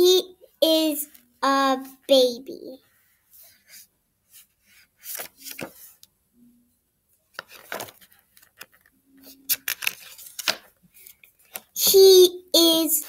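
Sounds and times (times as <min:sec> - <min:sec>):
book pages rustling and flapping: 0:03.4 - 0:06.0, 0:07.3 - 0:11.8.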